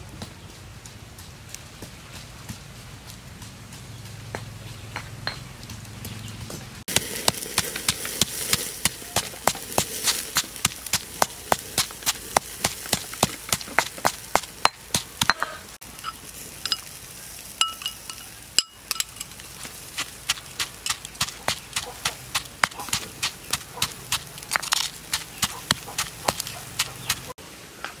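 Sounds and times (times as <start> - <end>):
stone pestle pounding in mortar: 6.9 - 15.6, 19.9 - 27.4.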